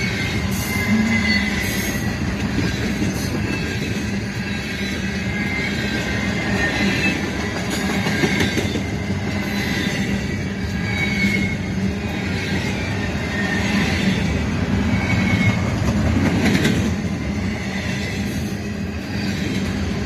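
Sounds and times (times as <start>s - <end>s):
high-pitched wheel squeals: 0.0s - 15.8s
freight train wheels rumbling on rail: 0.0s - 20.0s.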